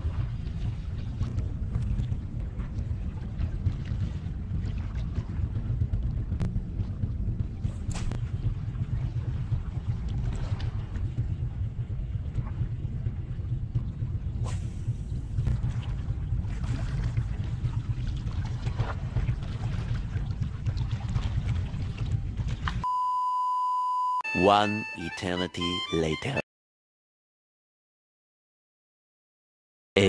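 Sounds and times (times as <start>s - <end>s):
wind buffeting microphone: 0.0s - 22.8s
water lapping against rocks: 13.8s - 22.8s.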